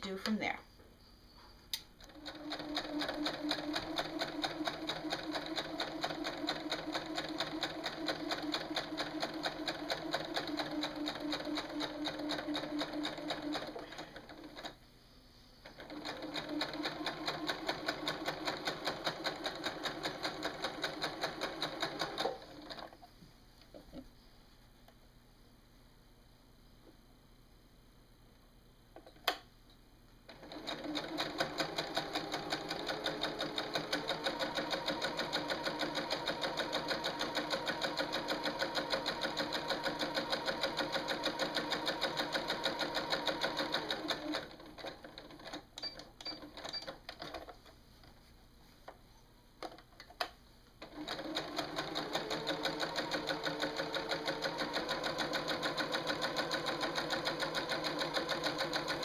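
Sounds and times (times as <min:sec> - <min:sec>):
sewing machine stitching: 0:02.0 - 0:14.8, 0:15.6 - 0:23.0, 0:30.3 - 0:47.6, 0:50.8 - 0:59.0.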